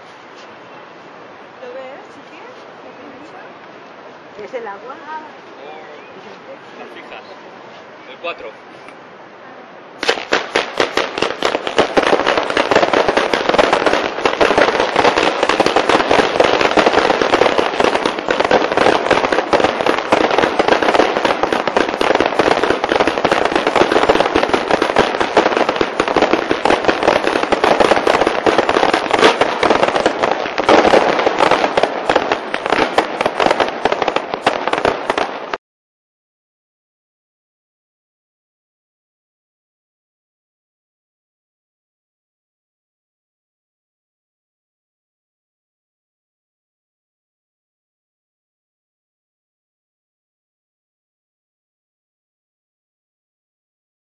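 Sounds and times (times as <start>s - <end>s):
fireworks crackling and banging: 0.0s - 9.1s, 10.0s - 35.6s.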